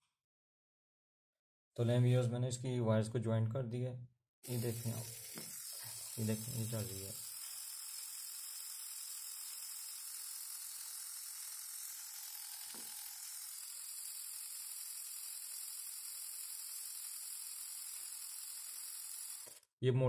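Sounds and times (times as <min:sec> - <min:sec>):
electric motor whirring: 0:04.4 - 0:19.7.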